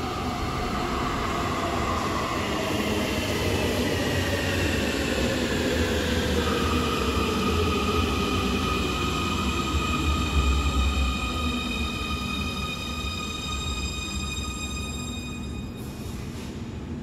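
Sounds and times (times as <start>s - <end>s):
train braking: 6.5s - 16.6s.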